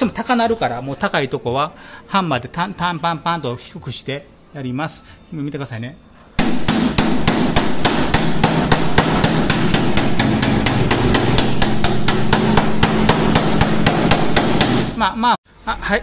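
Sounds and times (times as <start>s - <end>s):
hammer tapping on steel: 6.4s - 15.0s.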